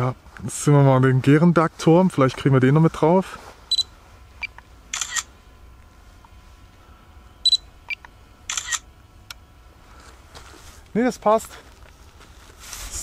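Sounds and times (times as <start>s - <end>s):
camera shutter sound: 4.9s - 5.3s, 8.5s - 8.9s.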